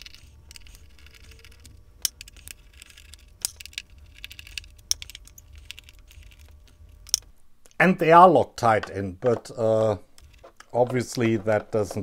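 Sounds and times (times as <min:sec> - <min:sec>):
screwdriver scratchy ticking: 0:00.0 - 0:07.3.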